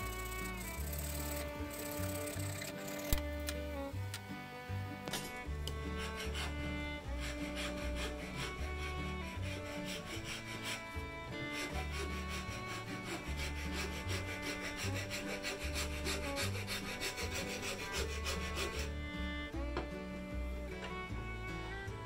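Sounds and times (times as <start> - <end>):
metal file rasping on wood: 0.0 - 3.2, 5.7 - 19.0
background music: 0.0 - 22.0.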